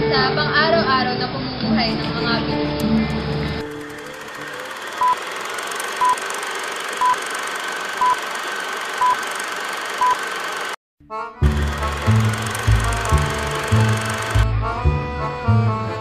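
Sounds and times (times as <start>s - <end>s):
music: 0.0s - 3.8s, 11.0s - 16.0s
short beeps: 5.0s - 5.2s, 6.0s - 6.2s, 7.0s - 7.2s, 8.0s - 8.2s, 9.0s - 9.2s, 10.0s - 10.2s.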